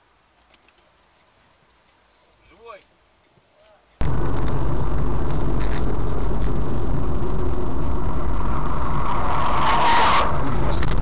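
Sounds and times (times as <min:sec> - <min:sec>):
car rumbling on the move: 0:04.0 - 0:11.0
loud rushing noise: 0:04.0 - 0:11.0.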